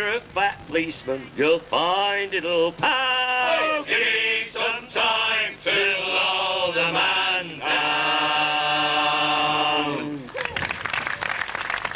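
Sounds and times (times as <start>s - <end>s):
men singing in harmony: 0.8s - 10.2s.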